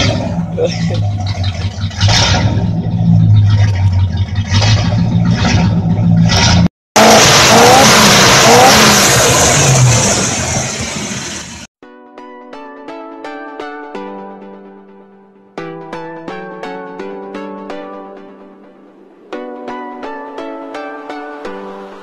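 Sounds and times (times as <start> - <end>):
engine revving loudly: 0.0 - 11.7
engine rushing roar: 0.0 - 11.7.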